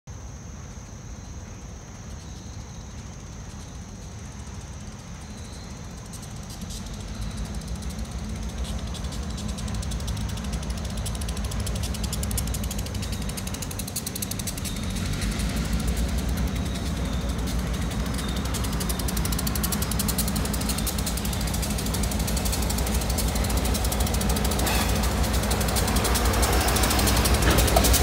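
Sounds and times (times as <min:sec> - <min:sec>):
diesel locomotive engine: 0:00.1 - 0:28.0
fast high ticking: 0:05.9 - 0:28.0.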